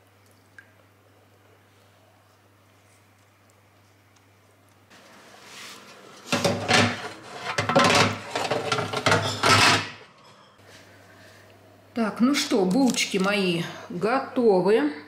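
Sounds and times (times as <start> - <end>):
metal baking tray scraping: 5.2 - 10.0.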